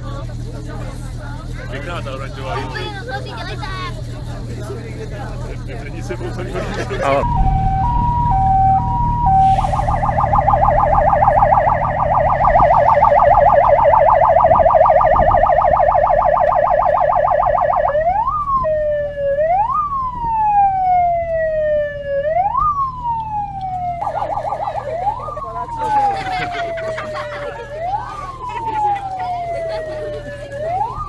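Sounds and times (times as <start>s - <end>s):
low rumble: 6.6s - 25.8s
fire vehicle siren: 6.6s - 31.0s.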